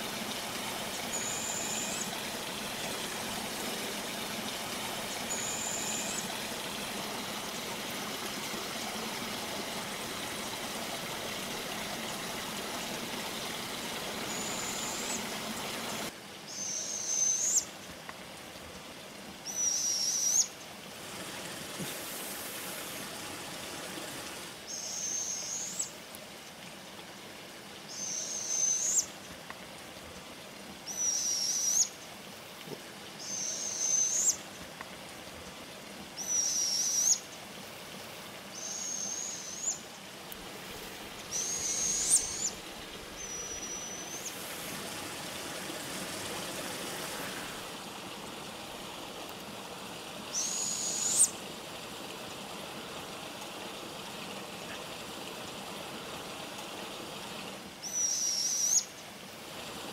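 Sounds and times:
owl fledglings screeching: 19.5 - 20.5, 30.9 - 31.9, 36.2 - 37.2, 41.3 - 42.6, 50.3 - 51.3, 57.8 - 58.9.

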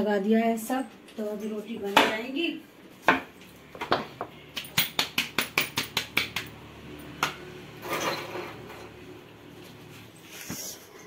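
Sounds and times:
dough slapped between palms: 4.5 - 6.6.

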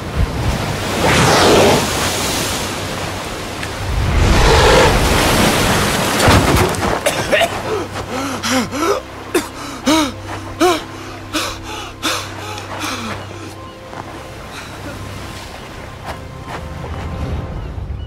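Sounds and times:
surf washing: 0.0 - 17.5
man coughing and gasping: 7.0 - 7.9.

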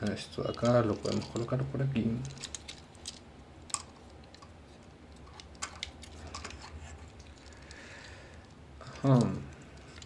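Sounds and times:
faint low hum: 0.0 - 10.0
plastic toy parts clicking: 2.2 - 4.5.

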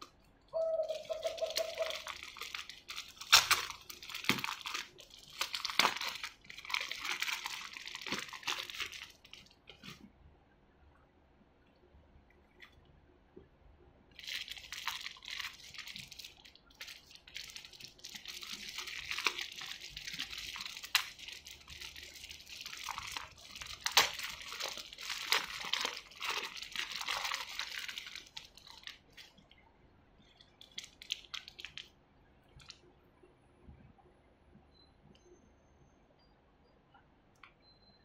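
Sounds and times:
plastic bag crinkling: 0.8 - 10.0, 14.1 - 29.5, 30.4 - 31.9.

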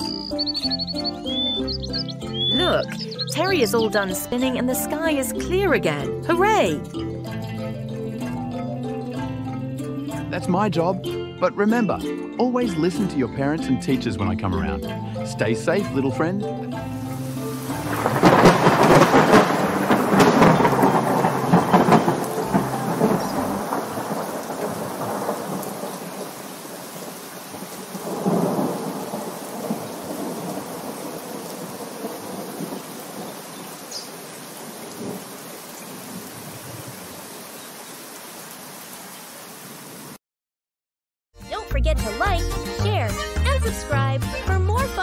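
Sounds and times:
steady rain: 16.9 - 40.2
crackling thunder: 17.5 - 37.4
rumble of thunder: 17.6 - 33.9.

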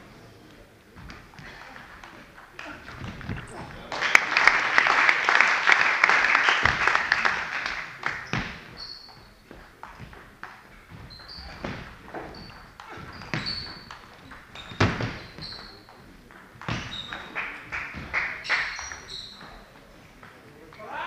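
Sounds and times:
spectators clapping: 1.6 - 8.4, 17.0 - 19.1
shoe squeaks: 8.2 - 19.9.

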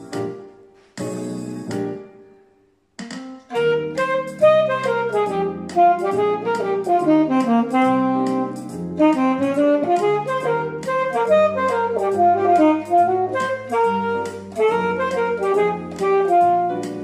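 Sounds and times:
alto saxophone melody: 3.5 - 17.0
piano chord: 3.5 - 17.0.

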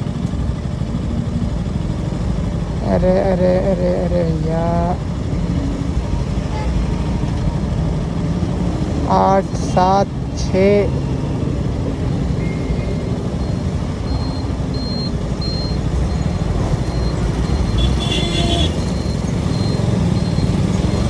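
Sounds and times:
motorcycle engine rumbling: 0.0 - 21.0
road traffic: 0.0 - 21.0
high electronic beeps: 12.4 - 17.8, 18.8 - 21.0.

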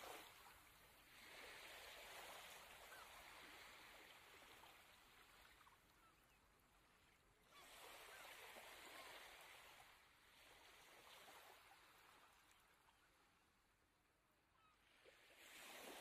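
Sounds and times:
shallow water washing on beach: 0.0 - 13.8, 14.6 - 16.0
distant bird calls: 14.5 - 14.8.

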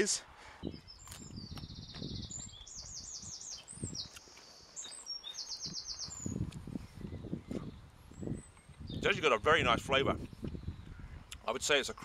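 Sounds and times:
songbird trilling and chirping: 0.6 - 9.5, 10.2 - 11.5
crunching and chewing of stem: 1.0 - 2.0.

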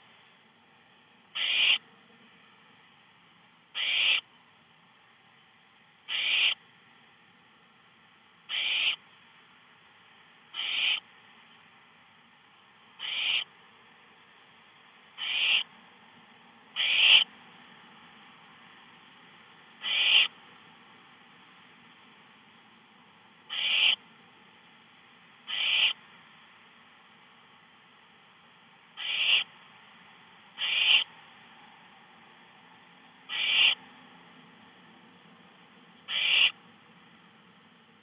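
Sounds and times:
owl nestlings hissing calls: 1.4 - 1.8, 3.8 - 4.2, 6.1 - 6.6, 8.5 - 9.0, 10.6 - 11.0, 13.0 - 13.5, 15.2 - 15.7, 16.8 - 17.3, 19.8 - 20.3, 23.5 - 24.0, 25.5 - 26.0, 29.0 - 29.5, 30.6 - 31.1, 33.3 - 33.8, 36.1 - 36.6.

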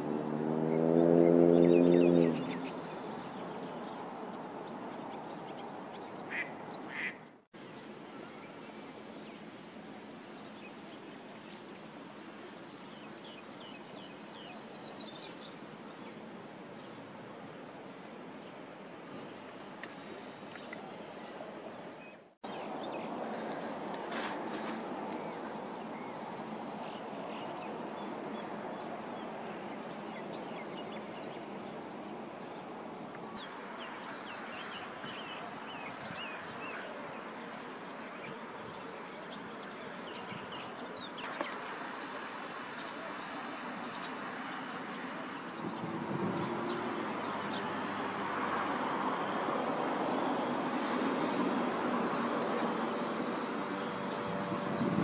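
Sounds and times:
steady background hiss: 41.3 - 45.7.

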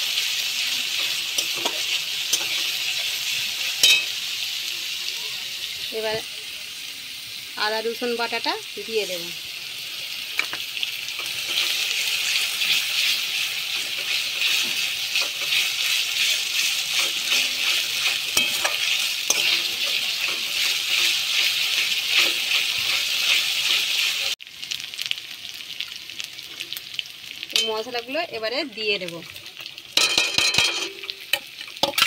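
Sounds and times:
onion sizzling in hot oil: 0.0 - 32.0
spatula scraping and tapping pan: 1.0 - 2.6, 13.8 - 23.9.

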